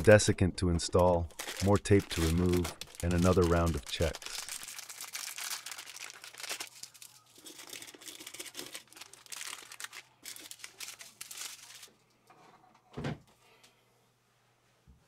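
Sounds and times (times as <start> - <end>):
plastic sachets crinkling: 0.8 - 12.0.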